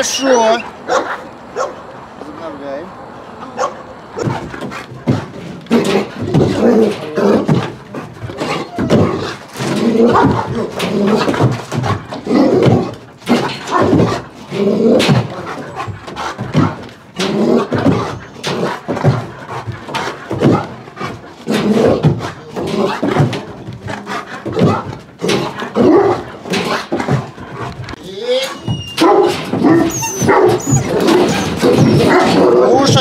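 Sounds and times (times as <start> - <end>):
dogs barking: 0.0 - 2.2, 3.1 - 33.0
wire mesh rattling: 4.2 - 33.0.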